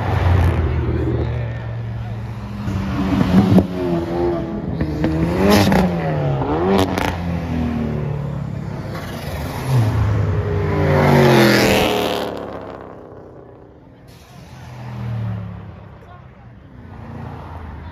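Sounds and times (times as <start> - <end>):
sports cars accelerating past: 0.0 - 14.0.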